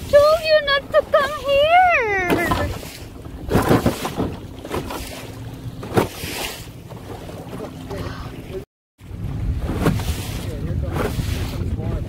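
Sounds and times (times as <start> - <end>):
water slapping against canoe hull: 0.0 - 12.0
wind noise on microphone: 9.1 - 12.0.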